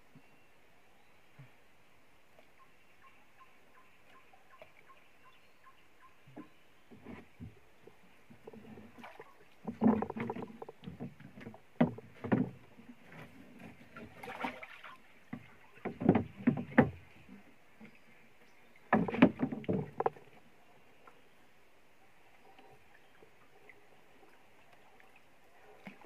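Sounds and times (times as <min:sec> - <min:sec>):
knocks and thumps on boat: 0:06.3 - 0:07.6, 0:08.3 - 0:14.6, 0:15.3 - 0:17.4, 0:18.9 - 0:20.4
water splashes: 0:07.0 - 0:21.2, 0:22.3 - 0:26.0
paddle knocking against boat: 0:08.4 - 0:12.8, 0:15.3 - 0:17.1, 0:18.9 - 0:20.3.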